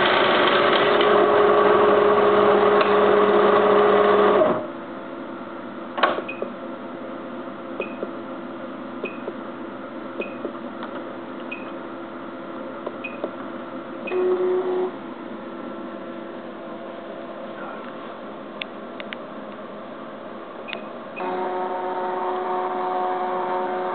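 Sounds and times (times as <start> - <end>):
short buzzing tone: 21.2 - 23.0.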